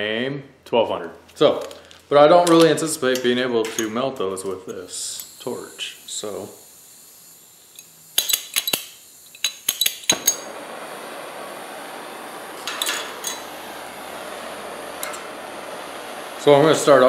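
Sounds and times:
torch flame hissing: 4.2s - 17.0s.

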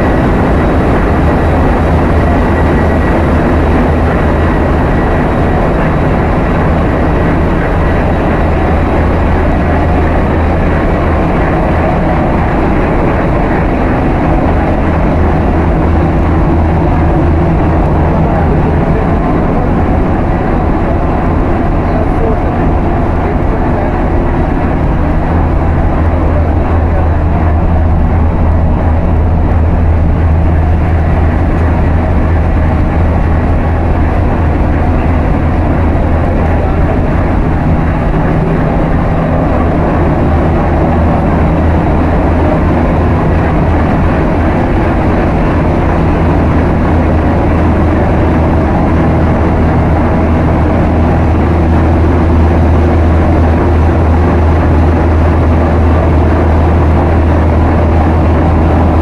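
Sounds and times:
engine room machinery droning: 0.0s - 59.0s.

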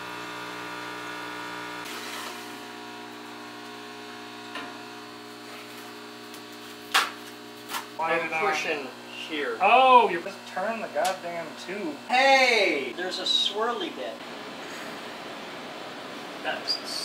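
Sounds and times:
water pump humming: 0.0s - 17.0s.

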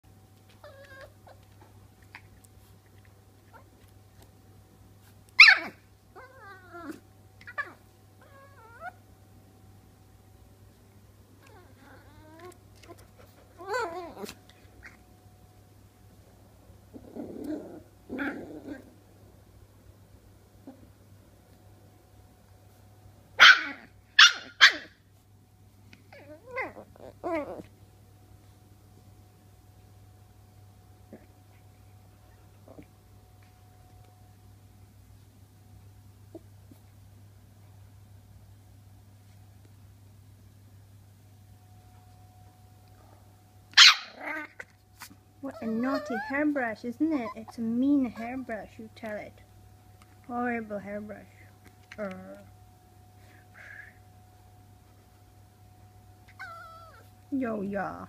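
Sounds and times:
whiny puppy yips: 0.6s - 1.4s, 5.4s - 9.0s, 23.4s - 25.0s, 43.7s - 44.7s, 45.5s - 46.4s, 56.3s - 57.1s
puppy barking: 5.4s - 5.8s, 23.4s - 25.0s, 43.8s - 44.6s.

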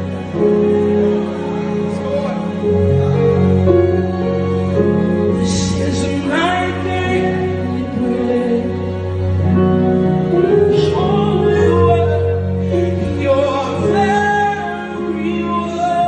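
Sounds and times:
keyboard chords: 0.0s - 16.0s
man singing gospel: 5.4s - 9.0s, 10.4s - 16.0s.

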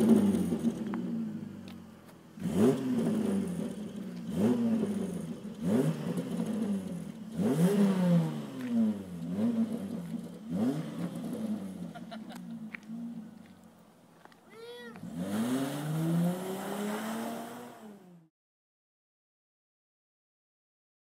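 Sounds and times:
engine revving: 0.0s - 1.7s, 2.3s - 13.4s, 14.9s - 18.3s.

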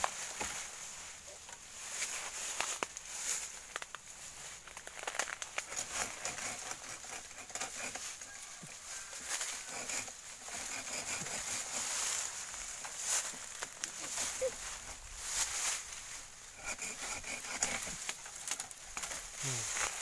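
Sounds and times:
bamboo rustling and snapping: 0.0s - 20.0s.

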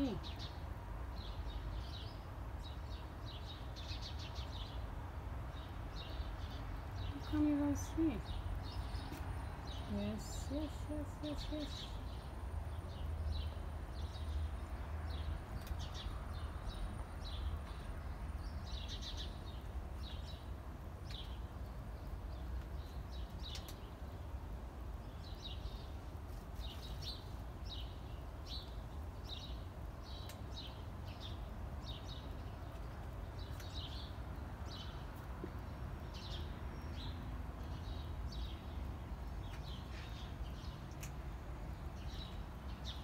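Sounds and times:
small birds chirping: 0.0s - 43.0s.

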